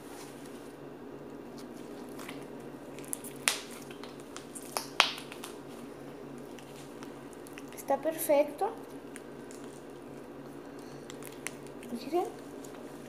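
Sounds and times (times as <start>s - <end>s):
slime squelching: 1.5s - 7.9s, 8.7s - 13.0s
squelching pops: 3.2s - 5.6s.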